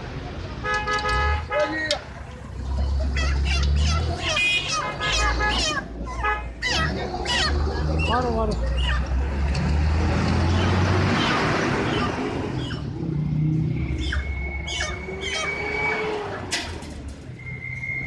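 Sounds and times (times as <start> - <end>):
chickens squawking: 2.7 - 9.4, 10.5 - 16.8.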